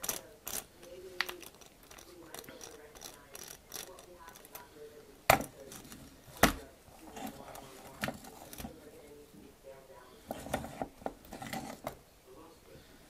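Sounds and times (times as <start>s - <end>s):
metal model clicks and rattles: 0.0s - 4.7s.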